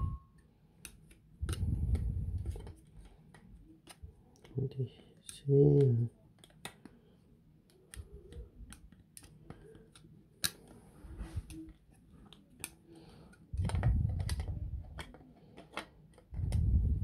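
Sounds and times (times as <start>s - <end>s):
plastic parts clicking and knocking: 11.5s - 16.6s.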